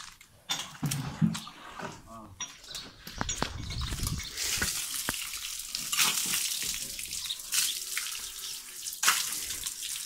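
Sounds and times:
water splashing from bucket: 3.8s - 10.0s.

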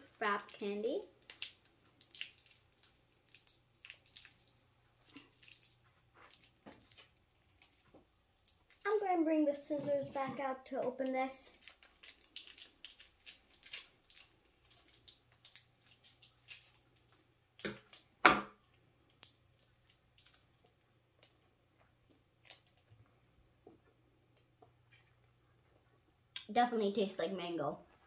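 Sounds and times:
wrapper crinkling: 0.4s - 9.1s, 10.8s - 18.1s, 18.7s - 21.5s, 22.1s - 23.0s
scissors snipping wrapper: 11.6s - 16.8s.

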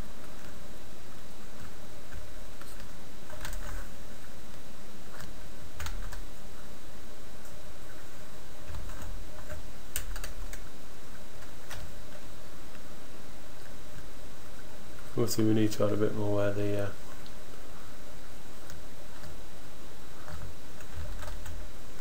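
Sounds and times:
background hiss: 0.0s - 22.0s
computer keyboard and mouse clicks: 8.7s - 10.6s.

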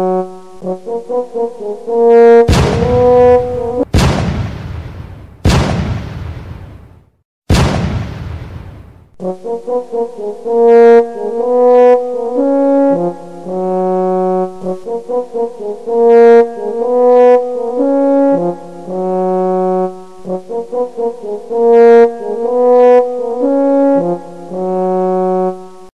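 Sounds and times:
background music melody: 0.0s - 3.9s, 9.2s - 25.9s.

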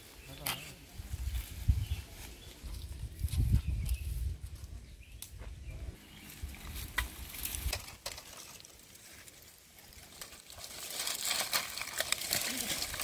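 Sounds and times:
leaves rustling: 0.0s - 13.0s
dry sticks snapping: 10.1s - 13.0s.

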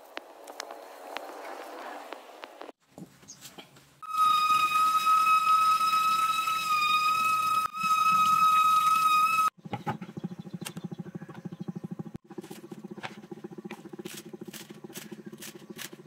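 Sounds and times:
high whistle from tap: 4.0s - 9.5s.

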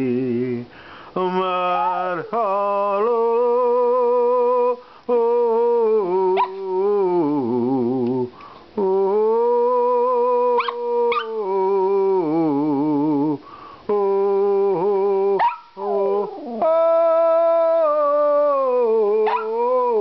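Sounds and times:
low singing voice: 0.0s - 20.0s
dog howling: 1.6s - 2.3s, 15.4s - 17.4s, 19.2s - 19.6s.

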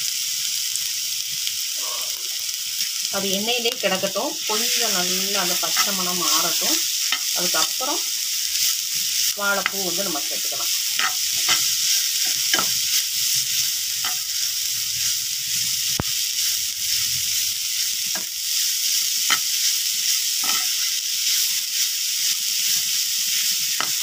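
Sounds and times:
masala sizzling in hot oil: 0.0s - 24.0s
steel spoon scraping pan: 10.9s - 12.8s, 20.4s - 21.0s.

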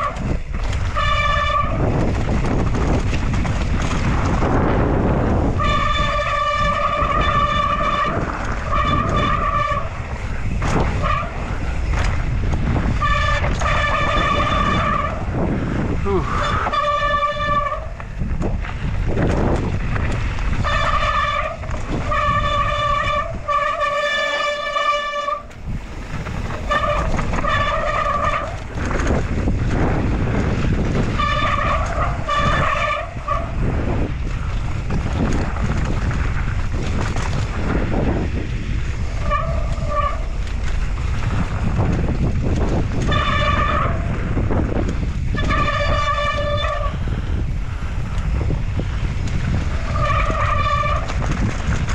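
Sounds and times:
disc brakes honking: 0.0s - 2.0s, 5.1s - 18.5s, 19.4s - 34.6s, 37.5s - 51.4s
tyres rumbling on rough dirt: 0.0s - 51.9s
wind: 0.0s - 51.9s.

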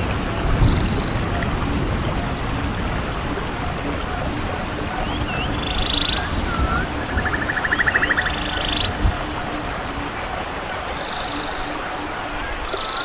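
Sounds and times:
rapid buzzing trills: 0.0s - 13.0s
steady rain: 0.0s - 13.0s
gliding whistles: 5.0s - 8.9s.

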